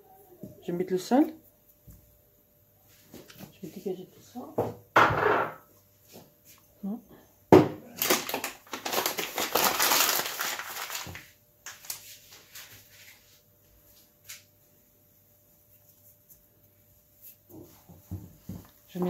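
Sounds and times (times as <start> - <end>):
paper bag crinkling: 7.9 - 12.9.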